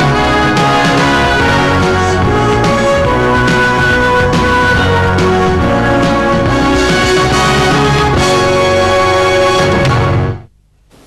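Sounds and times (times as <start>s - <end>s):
television news theme music: 0.0s - 10.5s.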